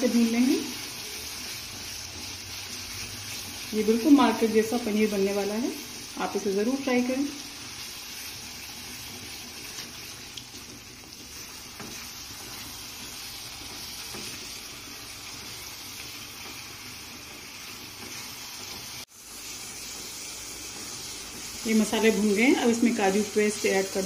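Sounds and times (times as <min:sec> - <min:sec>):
masala sizzling in a frying pan: 0:00.0 - 0:24.0.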